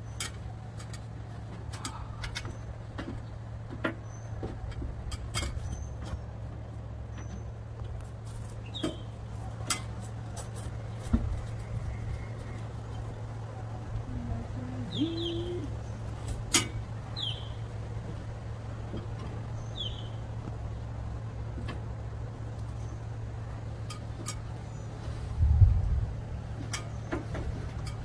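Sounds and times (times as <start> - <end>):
boots on metal ladder rungs: 0.0 - 11.7
low steady hum: 0.0 - 28.0
high bird chirps: 17.2 - 17.6.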